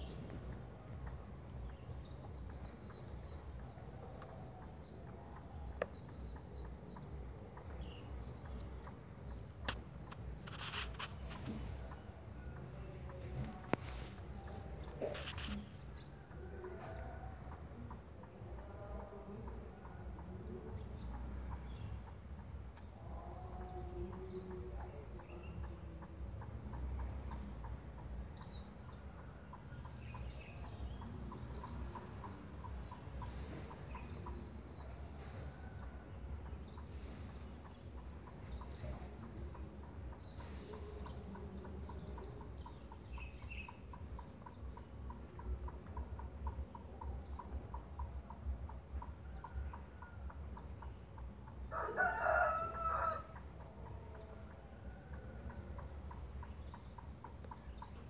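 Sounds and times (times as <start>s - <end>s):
small birds chirping: 0.0s - 58.0s
rooster crowing: 51.7s - 53.5s.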